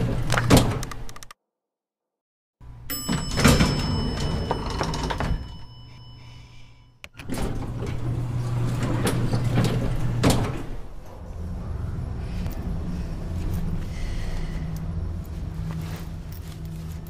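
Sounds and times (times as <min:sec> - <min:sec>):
lift doors sliding: 0:00.0 - 0:01.1, 0:02.9 - 0:05.7, 0:07.2 - 0:16.3
doors striking: 0:02.9 - 0:05.6, 0:07.1 - 0:11.3
bell-like chime: 0:02.9 - 0:07.0
steady low hum: 0:05.4 - 0:17.0.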